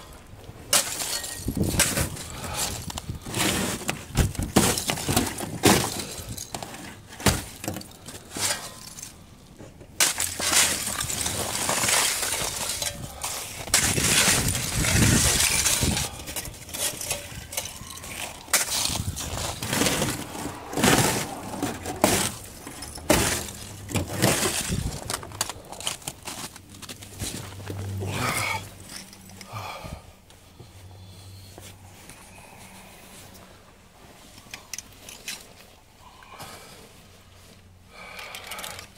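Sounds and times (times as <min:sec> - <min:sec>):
ice cracking and crunching: 0:00.0 - 0:09.2, 0:10.0 - 0:29.1
ice chunks clinking: 0:00.7 - 0:09.2, 0:10.0 - 0:27.4
scraping ice: 0:00.7 - 0:09.2, 0:10.0 - 0:29.0.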